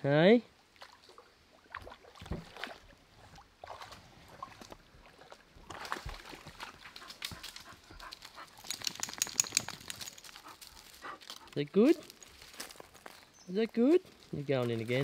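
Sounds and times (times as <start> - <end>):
dog splashing in water: 5.1 - 10.4.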